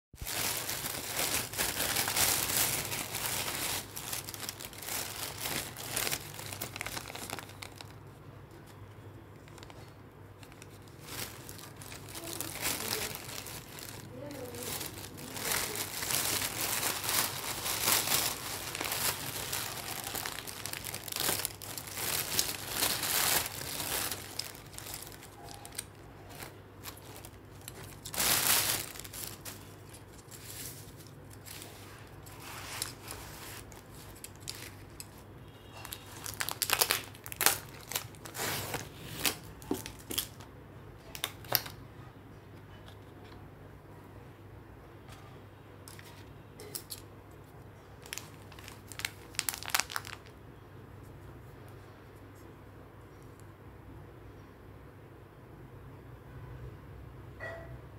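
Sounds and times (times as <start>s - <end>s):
plastic bag rustling: 0.2s - 8.0s, 9.4s - 40.4s, 48.0s - 50.3s.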